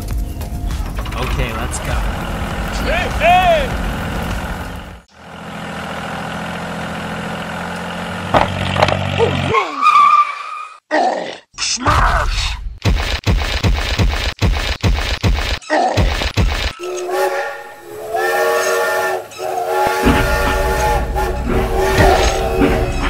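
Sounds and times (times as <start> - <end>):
steam train chugging: 16.8 - 23.0
steam whistle: 16.8 - 23.0.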